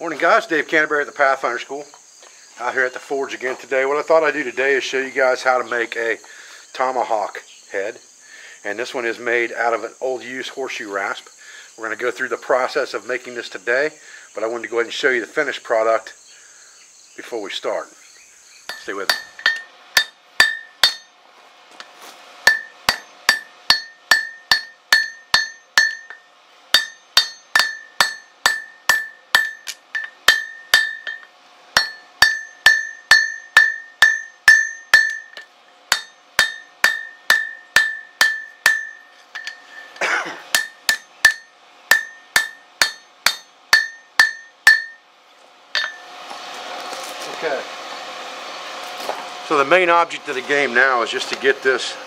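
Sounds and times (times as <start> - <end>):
anvil ringing: 18.7 - 21.1, 22.5 - 45.0, 45.8 - 46.1
hammer striking hot steel: 18.7 - 21.1, 22.4 - 45.0, 45.7 - 46.1.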